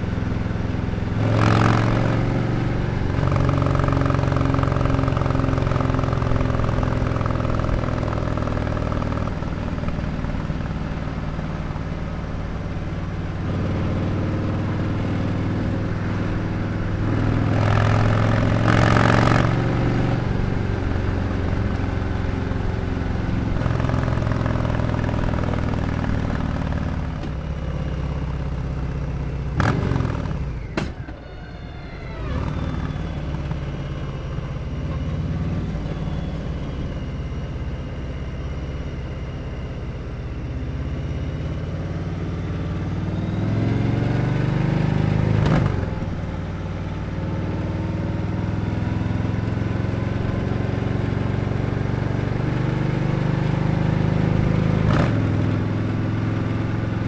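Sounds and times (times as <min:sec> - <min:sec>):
motorcycle engine running: 0:00.0 - 0:31.1.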